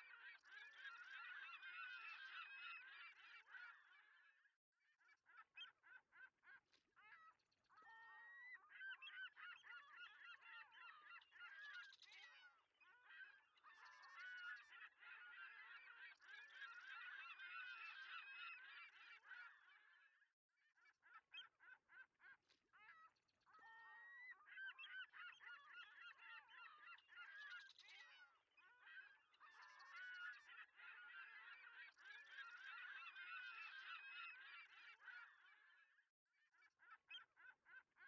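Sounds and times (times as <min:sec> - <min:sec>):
many birds chattering: 0:13.4 - 0:19.7, 0:24.0 - 0:35.5.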